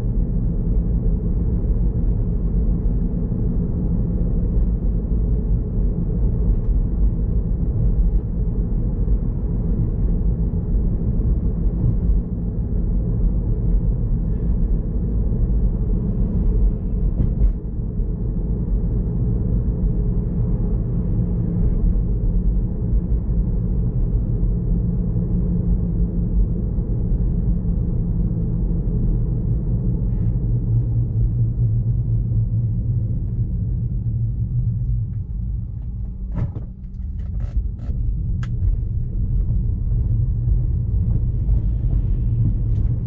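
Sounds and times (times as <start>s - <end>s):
road and tyre rumble in car: 0.0s - 43.0s.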